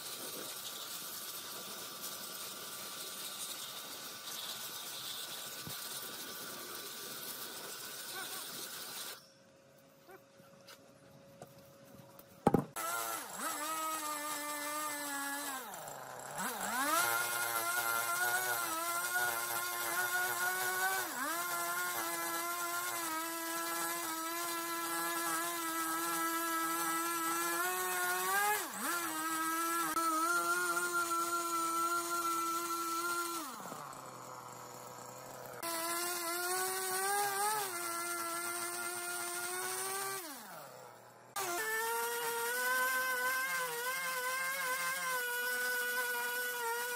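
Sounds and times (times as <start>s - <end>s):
chainsaw cutting wood: 0.0s - 9.3s, 12.4s - 46.9s
sharp knock: 12.5s - 12.7s.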